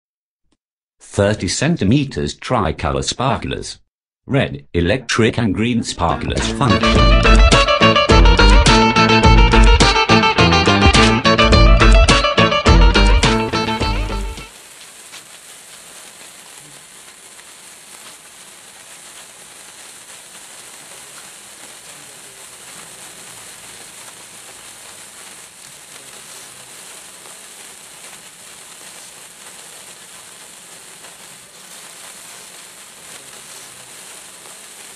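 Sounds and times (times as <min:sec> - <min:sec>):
music: 0:06.1 - 0:14.5
sparkler fizzing and crackling: 0:06.6 - 0:34.9.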